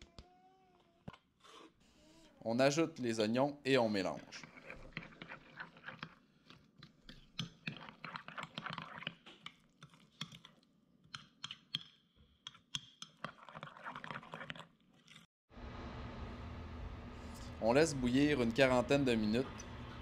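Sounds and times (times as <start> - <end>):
spoon scraping glass bowl: 4.2 - 9.2, 13.0 - 15.2.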